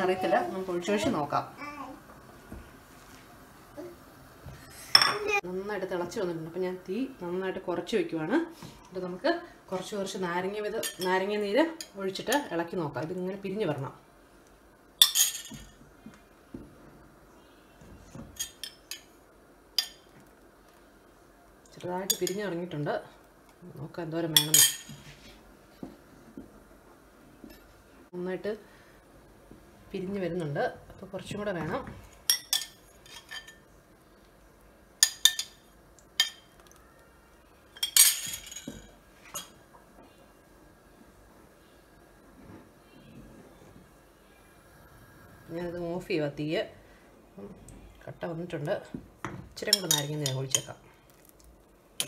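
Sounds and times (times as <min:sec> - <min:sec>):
metal spoon clinking on pot: 0:49.7 - 0:50.7.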